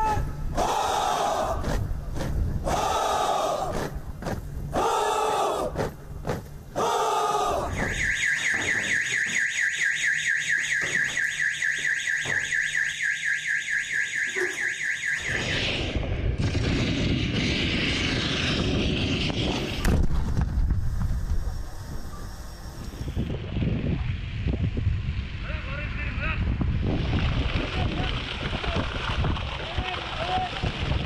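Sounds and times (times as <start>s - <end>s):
rough outdoor noise: 0.0s - 12.8s, 13.8s - 31.0s
electronic alarm siren warbling: 7.7s - 16.0s
explosion bang: 15.3s - 21.1s.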